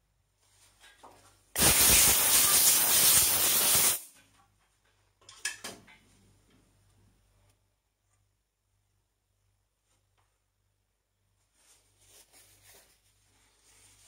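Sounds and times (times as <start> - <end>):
pressurised spray hissing: 1.6 - 4.1.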